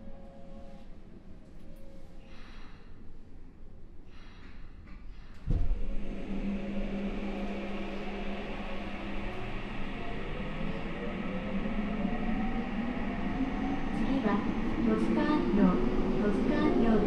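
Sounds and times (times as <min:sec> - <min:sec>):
train motors humming and whining: 0:05.2 - 0:17.0.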